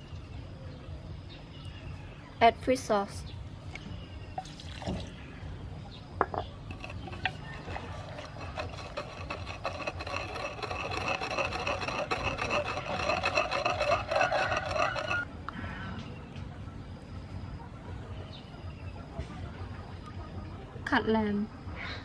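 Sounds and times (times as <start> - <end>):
pestle grinding paste in mortar: 6.7 - 15.3.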